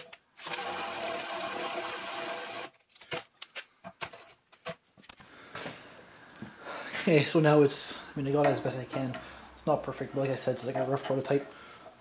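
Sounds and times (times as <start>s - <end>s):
cordless drill boring into steel: 0.4s - 2.7s.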